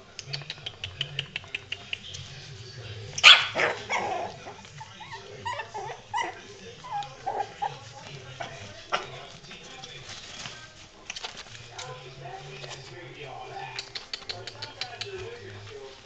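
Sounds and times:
puppy yipping and whimpering: 3.2s - 7.7s
claws clicking on tile floor: 13.6s - 15.7s.

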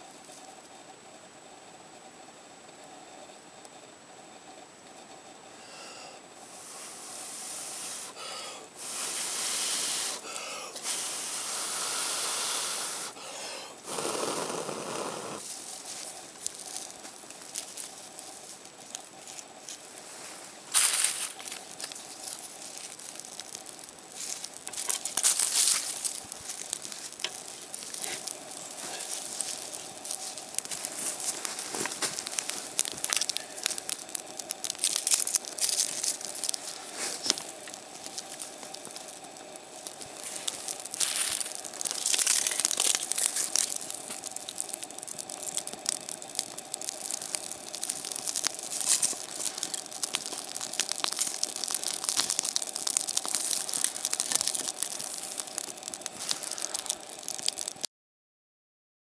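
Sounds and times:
small fire crackling: 0.0s - 57.9s
bark crinkling and rustling: 15.4s - 57.8s.

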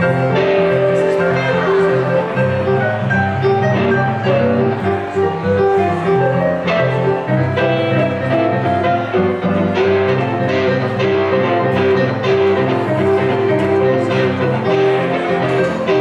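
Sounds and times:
electric guitar: 0.0s - 16.0s
keyboard: 0.0s - 16.0s.

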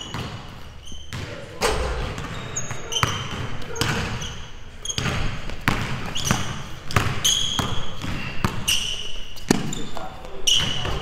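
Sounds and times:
sneaker squeaks: 0.0s - 11.0s
basketball bouncing on wooden floor: 1.1s - 8.7s.

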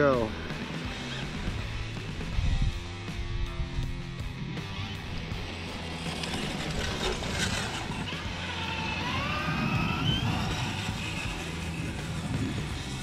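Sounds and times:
toy truck motor whining: 0.8s - 1.6s, 5.1s - 13.0s.

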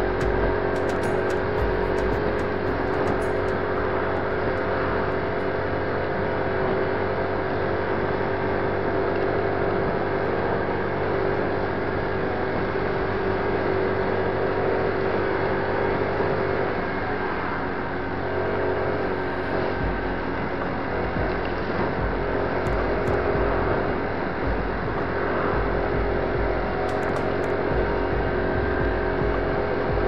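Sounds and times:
scooter engine running: 0.0s - 6.2s, 8.2s - 30.0s
road noise: 0.0s - 30.0s
wind noise: 18.3s - 30.0s.

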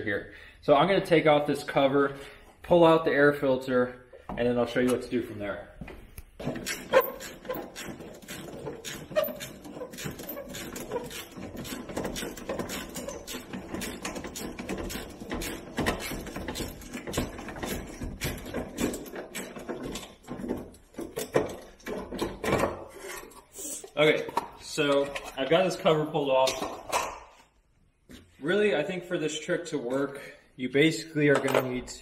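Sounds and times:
hand tool clicking on metal clamps: 6.4s - 22.5s.

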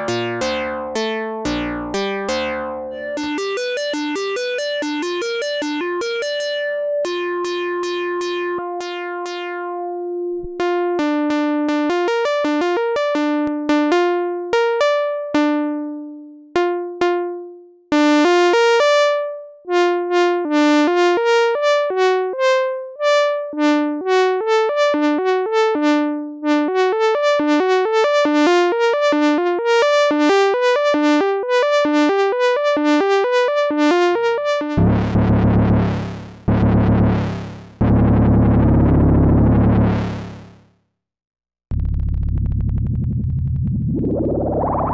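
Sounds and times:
analog synthesizer melody: 0.0s - 13.4s, 34.2s - 40.6s, 41.7s - 44.9s.

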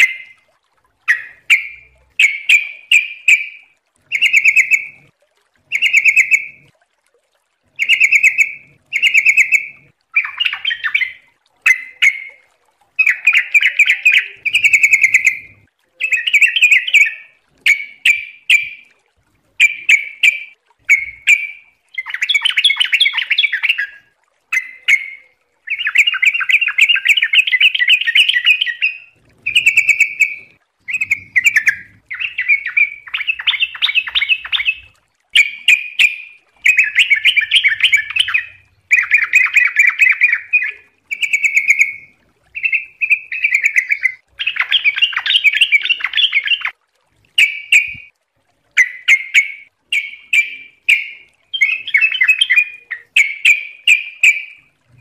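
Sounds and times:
bulbul chattering song: 1.0s - 5.1s, 5.7s - 6.7s, 7.8s - 18.9s, 19.5s - 46.8s, 47.4s - 48.1s, 48.7s - 55.0s.

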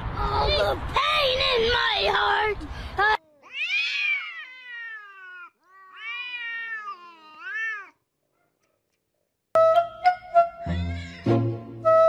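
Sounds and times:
cats yowling: 3.4s - 8.0s.

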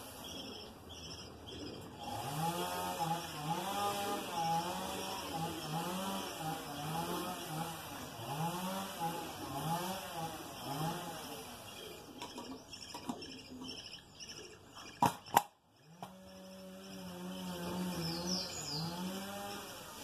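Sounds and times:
small bird chirping: 0.0s - 8.8s, 9.6s - 19.6s
sharp clicks: 15.0s - 16.2s.

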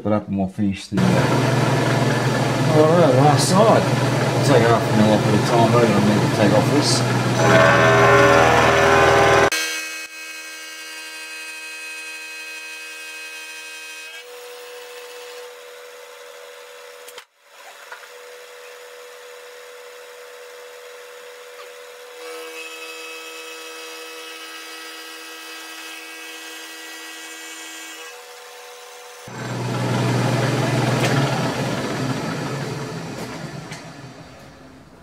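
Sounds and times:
milling machine whine: 1.0s - 9.5s, 29.3s - 35.0s.

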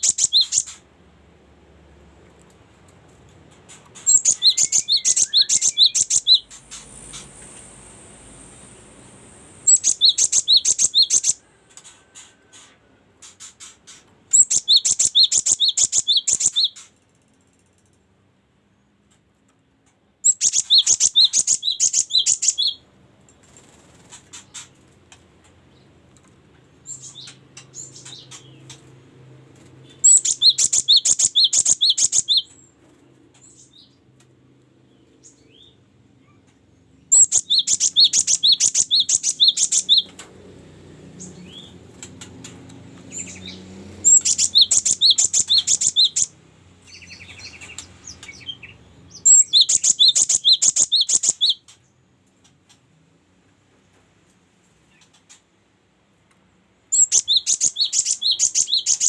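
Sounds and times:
soft bird calls: 0.0s - 0.8s, 3.7s - 17.0s, 20.2s - 28.9s, 29.6s - 34.0s, 34.9s - 40.3s, 41.2s - 52.8s, 56.9s - 59.0s.

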